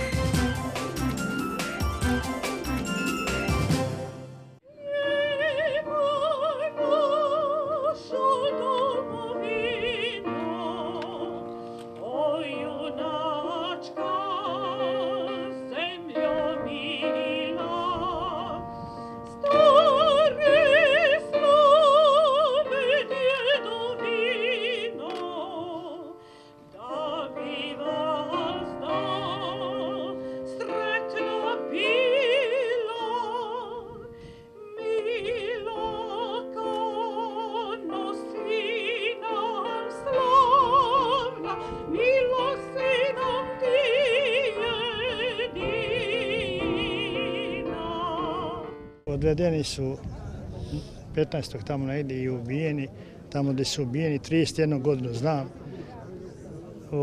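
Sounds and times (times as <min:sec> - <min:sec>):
sustained instrumental accompaniment: 0:00.0 - 0:04.6.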